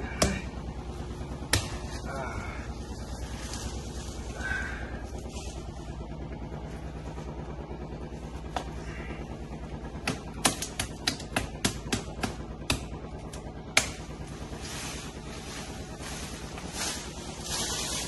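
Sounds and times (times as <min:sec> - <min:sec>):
knife chopping into tree trunk: 0:01.5 - 0:01.9, 0:10.0 - 0:14.1.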